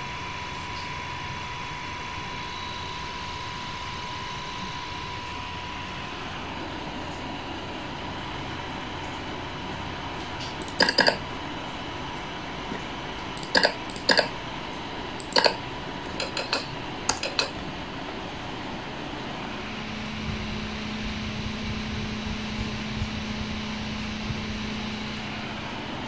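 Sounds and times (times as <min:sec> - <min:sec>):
cooling fan humming: 0:00.0 - 0:26.0
sharp clicks: 0:10.5 - 0:11.2, 0:13.4 - 0:14.3, 0:15.2 - 0:17.6.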